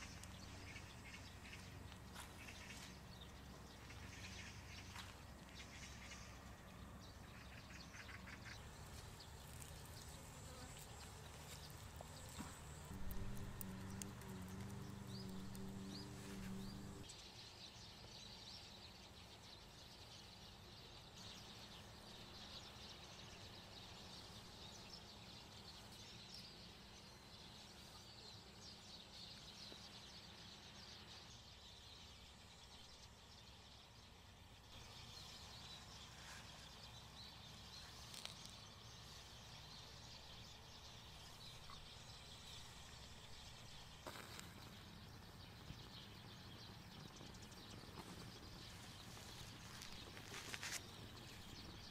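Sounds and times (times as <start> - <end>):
low steady rumble: 0.0 - 17.1
small birds chirping: 0.0 - 51.9.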